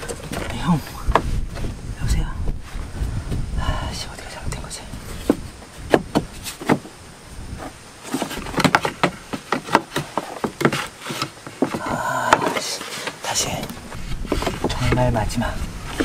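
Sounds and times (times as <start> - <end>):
plywood panels knocking and clattering: 5.2 - 6.9, 8.0 - 13.2, 13.9 - 15.2.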